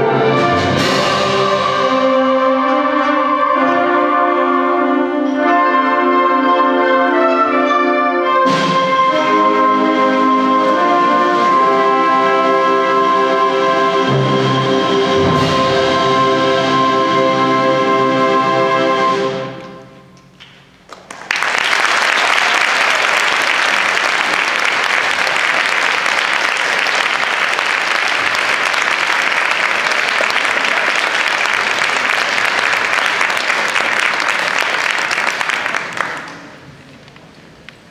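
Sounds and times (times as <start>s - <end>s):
audience applause: 20.9s - 36.8s.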